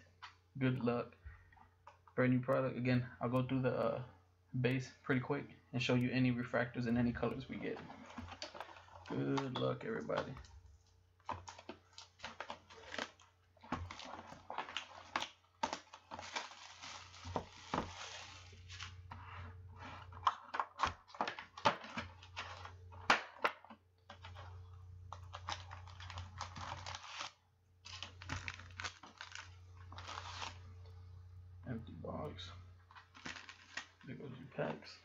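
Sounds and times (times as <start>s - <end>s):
card packs rustling and clicking: 7.0s - 10.6s, 11.2s - 30.7s, 32.1s - 35.0s
plastic shrink wrap crinkling and tearing: 11.2s - 19.1s, 24.1s - 30.7s, 32.9s - 34.2s
steady low hum: 29.6s - 33.1s.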